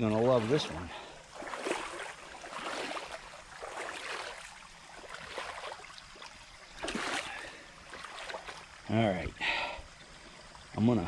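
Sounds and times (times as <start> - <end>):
splashing steps in water: 0.0 - 8.8.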